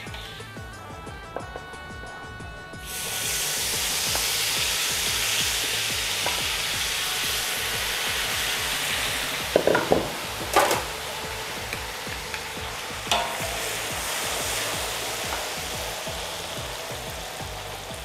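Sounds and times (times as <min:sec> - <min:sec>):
oil sizzling: 0:00.0 - 0:18.0
utensil knocks: 0:08.7 - 0:17.1.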